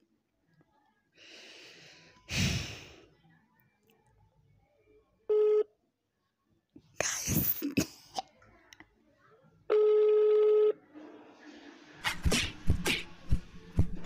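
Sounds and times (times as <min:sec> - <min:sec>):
phone beep: 0:05.3 - 0:05.7, 0:09.7 - 0:10.8.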